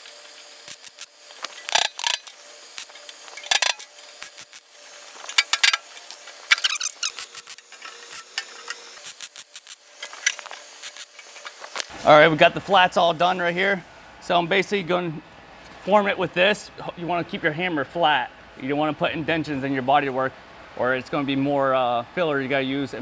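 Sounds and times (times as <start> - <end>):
welding arc crackle: 0.0 - 11.9.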